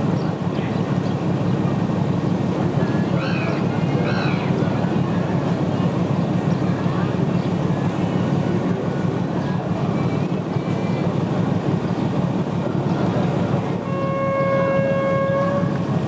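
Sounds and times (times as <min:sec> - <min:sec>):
diesel train rumbling: 0:00.0 - 0:16.0
diesel locomotive horn: 0:13.7 - 0:16.0.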